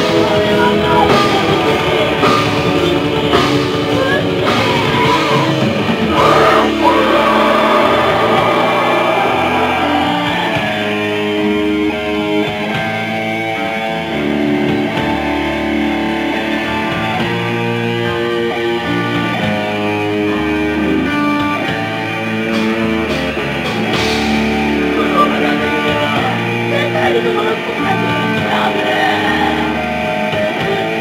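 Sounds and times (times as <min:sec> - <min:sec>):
death metal band playing: 0:00.0 - 0:31.0.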